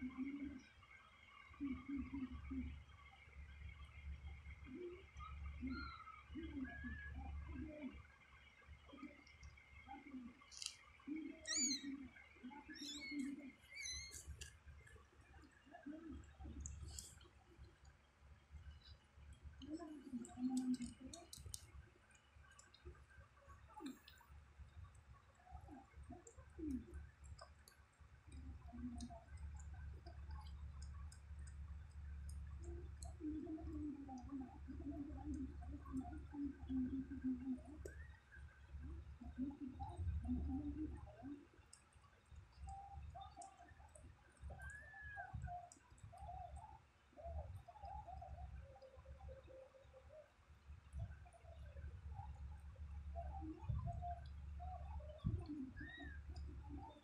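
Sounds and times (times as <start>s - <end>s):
kittens squeaking: 10.5s - 12.0s, 12.6s - 14.4s
lower cat sounds: 11.3s - 11.9s.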